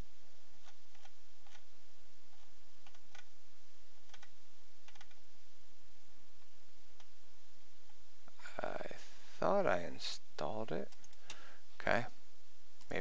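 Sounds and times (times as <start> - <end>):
steady background hiss: 0.0 - 13.0
computer mouse clicks: 0.6 - 1.7, 2.3 - 3.3, 4.0 - 5.2, 10.9 - 11.4
scroll wheel turning: 0.6 - 1.7, 4.1 - 5.2.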